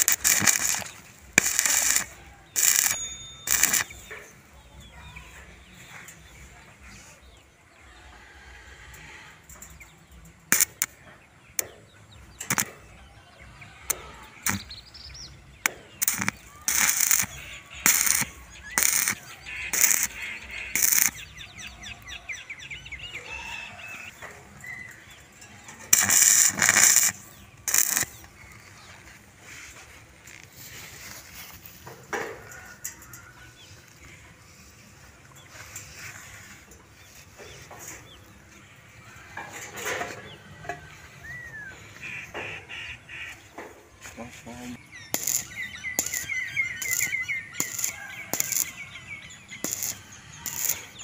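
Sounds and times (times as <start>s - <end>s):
short crackling bursts: 0.0s - 4.4s, 10.5s - 11.0s, 12.4s - 12.9s, 13.9s - 15.0s, 15.7s - 22.0s, 25.3s - 31.9s, 44.8s - 51.0s.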